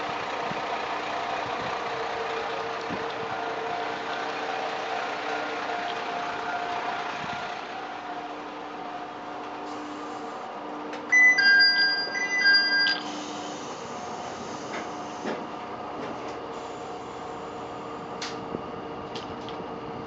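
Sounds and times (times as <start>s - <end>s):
diesel engine idling: 0.0s - 9.4s.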